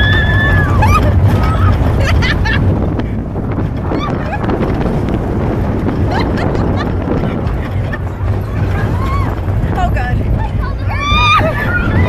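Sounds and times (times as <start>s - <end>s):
riders crying out: 0.0s - 1.8s, 8.4s - 9.5s, 10.8s - 12.0s
low rumble of roller coaster train: 0.0s - 12.0s
wind buffeting microphone: 0.0s - 12.0s.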